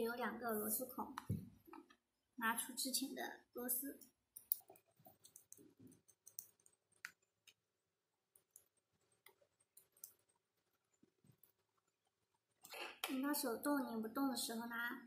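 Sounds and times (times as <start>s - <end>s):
small metal screws clicking: 4.4s - 6.7s.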